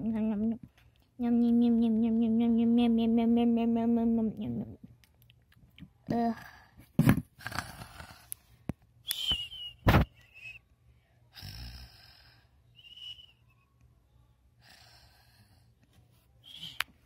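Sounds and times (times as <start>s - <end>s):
short high whistling: 9.1s - 10.6s, 16.4s - 16.8s.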